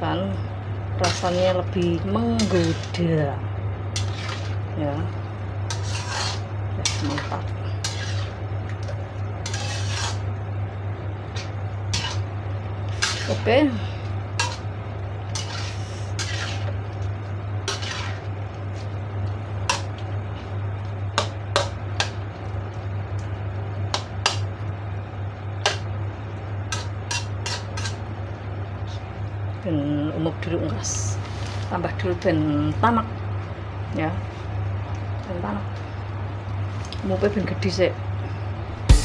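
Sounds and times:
steady low hum: 0:00.0 - 0:39.0
spatula scraping a wok: 0:01.0 - 0:03.1, 0:03.9 - 0:04.7, 0:05.6 - 0:10.4, 0:11.4 - 0:19.0, 0:26.6 - 0:28.0, 0:31.2 - 0:31.7.

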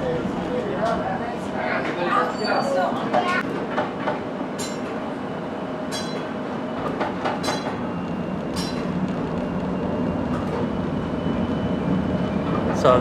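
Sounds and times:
streetcar rumble: 0:00.0 - 0:13.0.

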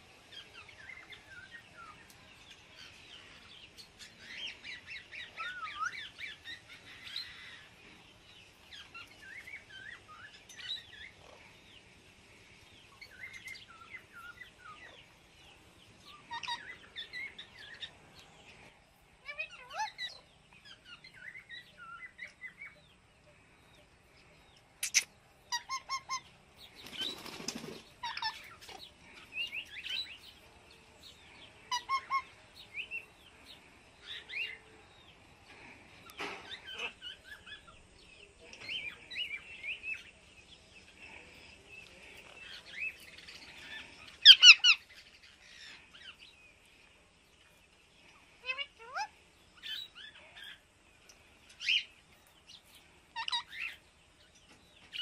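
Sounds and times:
parrots chirping: 0:16.0 - 0:18.0, 0:24.8 - 0:26.5, 0:28.0 - 0:30.2, 0:31.7 - 0:32.4, 0:42.7 - 0:46.2, 0:48.4 - 0:50.6, 0:53.1 - 0:53.8
wings flapping: 0:26.8 - 0:28.0.

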